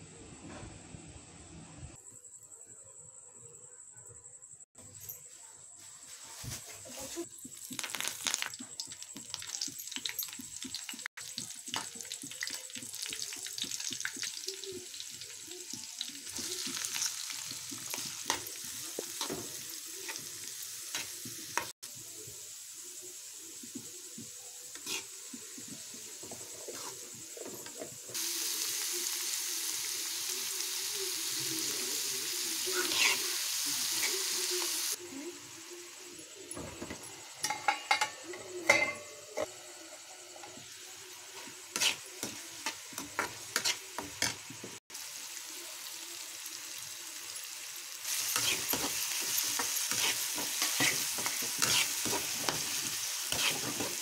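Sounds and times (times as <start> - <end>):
onions sizzling in oil: 5.8 - 54.0
metal spatula scraping a pan: 24.7 - 27.9, 32.8 - 33.4, 41.4 - 44.4, 48.1 - 54.0.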